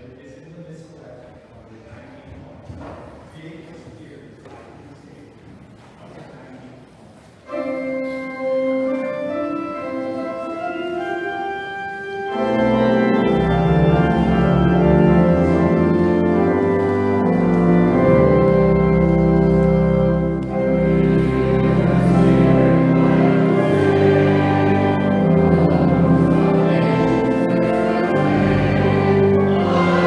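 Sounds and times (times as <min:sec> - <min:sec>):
church organ chords: 0:07.4 - 0:30.0
organ pedal bass notes: 0:07.6 - 0:30.0.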